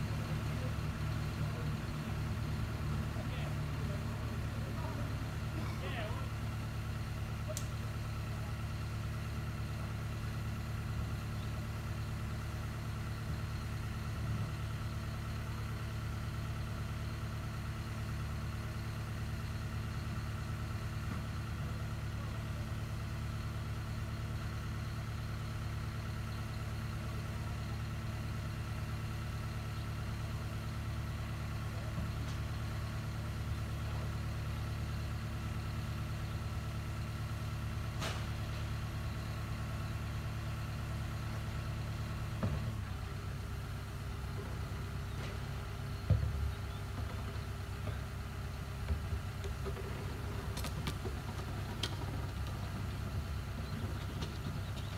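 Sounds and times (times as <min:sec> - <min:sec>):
diesel engine idling: 0:00.0 - 0:54.9
faint click: 0:07.5 - 0:07.7.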